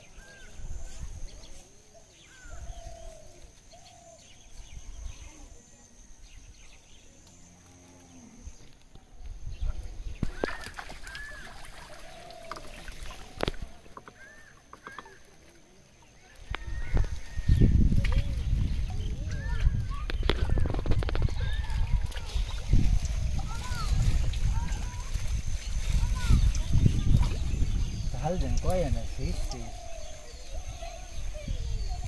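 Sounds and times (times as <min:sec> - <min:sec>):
birds chirping: 0:00.0 - 0:32.0.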